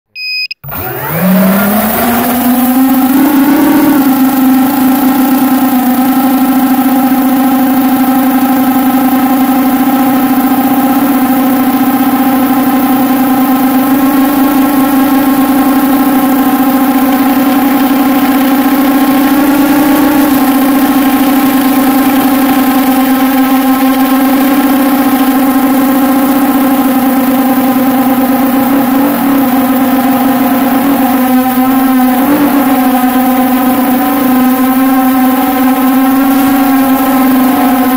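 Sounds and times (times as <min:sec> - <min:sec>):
quadcopter propellers droning: 0:00.6 - 0:37.9.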